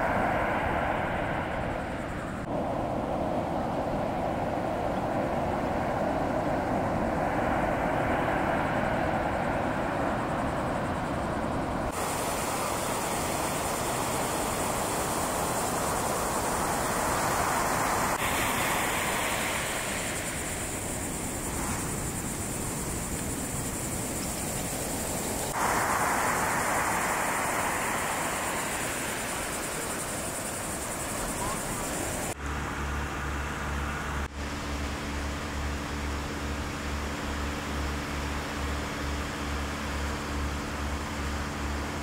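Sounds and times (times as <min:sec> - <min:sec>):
ocean surf breaking: 0:00.0 - 0:32.4
faint steady hum: 0:00.0 - 0:42.0.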